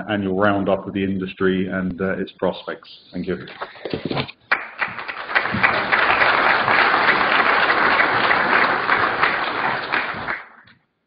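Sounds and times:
audience applauding: 0:04.5 - 0:10.7.

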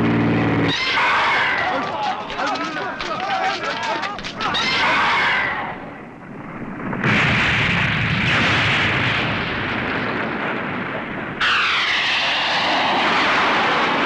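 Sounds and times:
explosions: 0:05.8 - 0:14.0
jet engine whine: 0:11.4 - 0:14.0.

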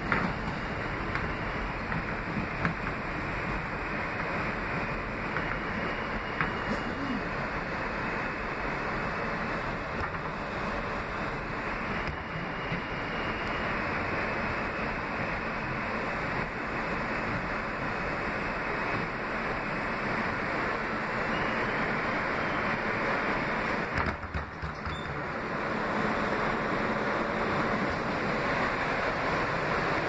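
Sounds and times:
subway wheels rushing on rail: 0:00.0 - 0:30.0.

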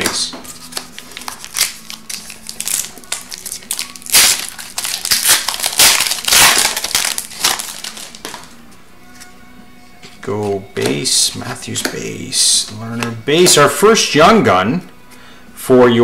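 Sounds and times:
foil wrapper tearing and crinkling: 0:00.5 - 0:08.5.

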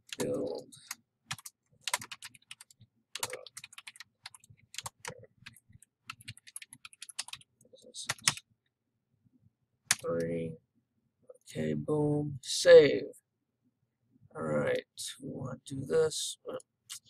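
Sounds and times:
typing on computer keyboard: 0:00.0 - 0:08.4.

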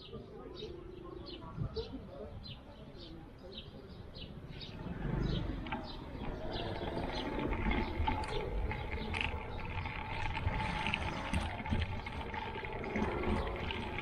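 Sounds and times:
tyres rumbling on paving: 0:04.3 - 0:14.0.

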